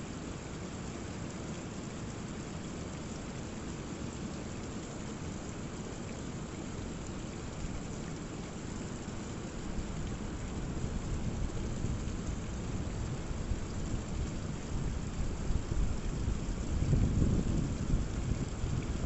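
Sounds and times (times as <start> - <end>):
low rumble of rough sea: 0.0 - 19.0
rainwater splashing down rock: 6.7 - 19.0.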